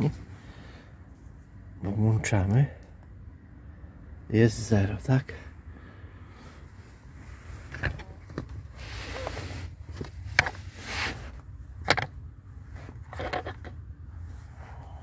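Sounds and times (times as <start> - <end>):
rustling and scraping on rubber mat: 7.2 - 11.5.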